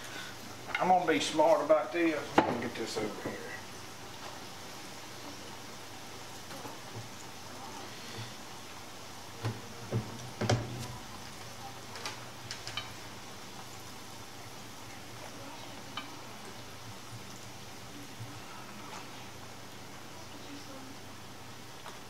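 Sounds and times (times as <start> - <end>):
mushrooms frying in oil: 0.0 - 22.0
metal utensil clicking on pan: 12.1 - 13.0.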